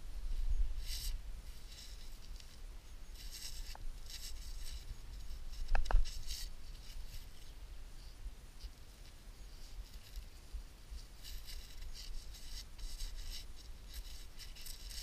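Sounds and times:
gloved hands scraping metal shell: 0:11.1 - 0:15.0.

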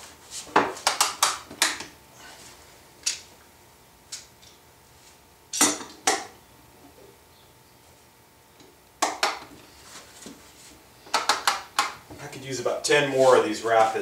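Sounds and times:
wooden clamps knocking and clacking: 0:00.5 - 0:01.9, 0:09.0 - 0:09.5, 0:11.1 - 0:12.0.

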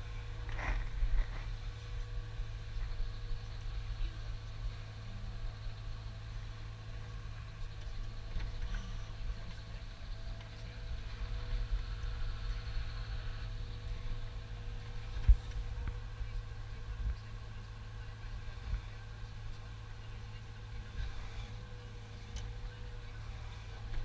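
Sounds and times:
engine and crane hydraulics: 0:00.0 - 0:24.0.

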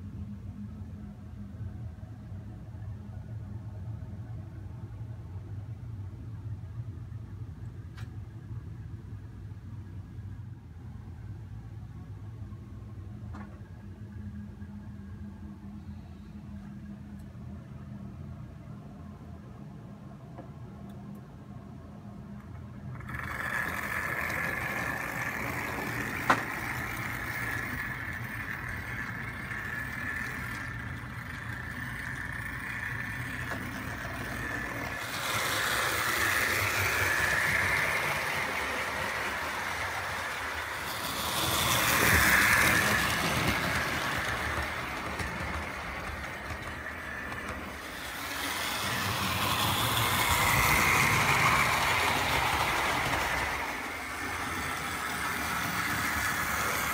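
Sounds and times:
wheels rumbling over track: 0:22.3 - 0:56.9
model train motor whirring: 0:22.7 - 0:56.9.

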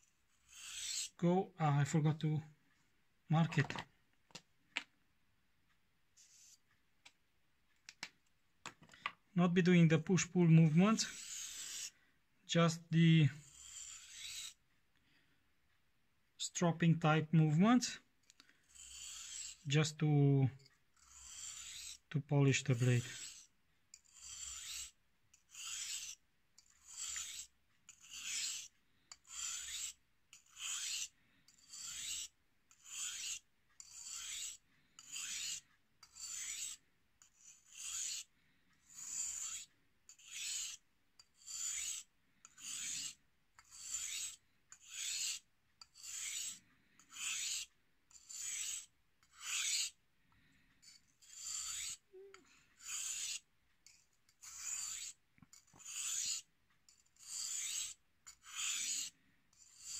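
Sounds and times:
knife strokes on whetstone: 0:00.0 - 0:01.2, 0:06.2 - 0:06.7, 0:10.2 - 0:12.0, 0:13.3 - 0:14.6, 0:18.7 - 0:20.0, 0:21.0 - 0:50.0, 0:50.8 - 0:52.0, 0:52.8 - 0:53.4, 0:54.3 - 0:59.9.

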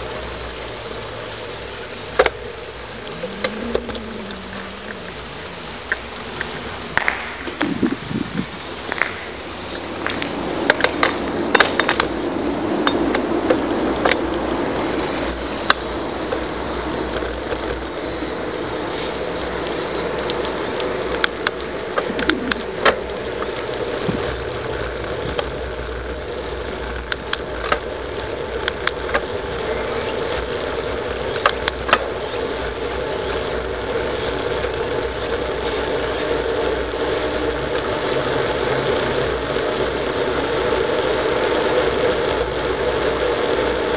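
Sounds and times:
bicycle clicks and rattles: 0:00.7 - 0:43.9
tyre rumble on asphalt: 0:01.2 - 0:43.9
wind rush: 0:02.8 - 0:19.6.

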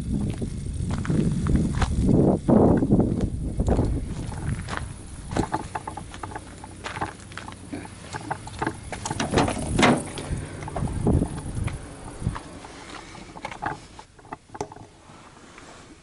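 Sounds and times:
footsteps crunching on gravel: 0:00.1 - 0:02.2, 0:02.8 - 0:14.2
handling noise with clicks: 0:03.6 - 0:15.7
car door unlatched and opened: 0:08.5 - 0:11.0.

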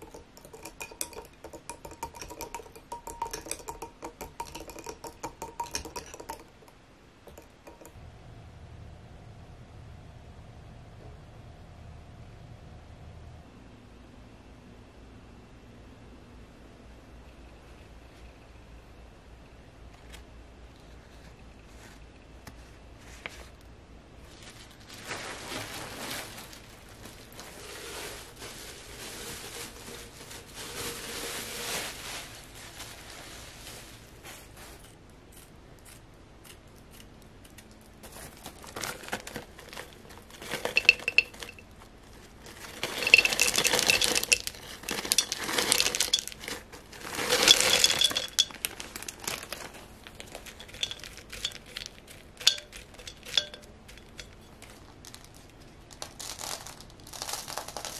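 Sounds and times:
stones clinking in ceramic pot: 0:00.0 - 0:08.0, 0:38.0 - 0:41.7, 0:42.3 - 0:55.4
rustling handling: 0:19.9 - 0:23.6, 0:24.2 - 0:35.5, 0:37.5 - 0:57.9.

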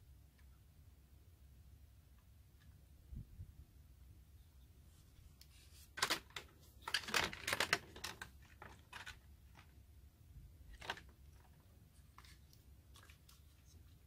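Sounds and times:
plastic model clicking and rustling: 0:06.0 - 0:09.8, 0:10.7 - 0:11.6.

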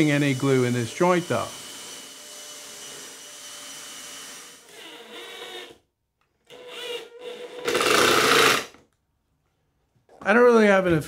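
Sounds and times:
drill driving screws into wood: 0:00.0 - 0:05.8, 0:06.5 - 0:08.8.

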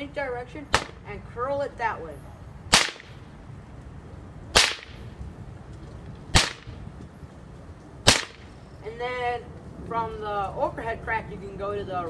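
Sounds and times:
bullwhip cracking: 0:00.7 - 0:01.0, 0:02.7 - 0:03.2, 0:04.6 - 0:05.0, 0:06.3 - 0:06.8, 0:08.1 - 0:08.5.

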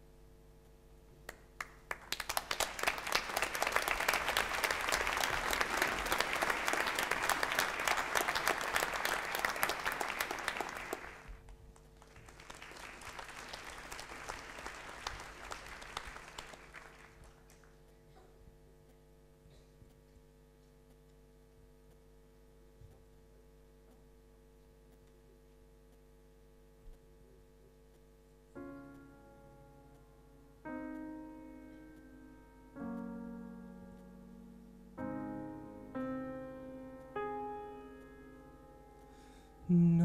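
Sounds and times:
audience applauding: 0:01.3 - 0:11.4, 0:12.0 - 0:17.8.

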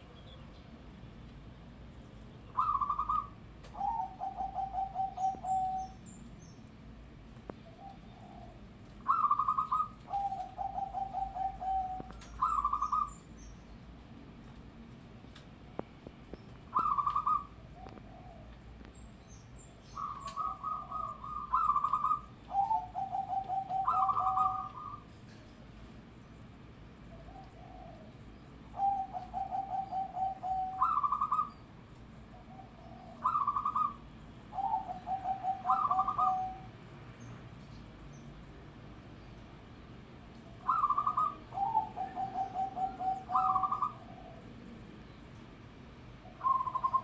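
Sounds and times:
dove cooing: 0:02.5 - 0:06.0, 0:07.6 - 0:13.2, 0:16.7 - 0:18.6, 0:19.9 - 0:25.1, 0:27.1 - 0:31.6, 0:32.3 - 0:36.7, 0:40.5 - 0:44.6, 0:46.2 - 0:47.0.

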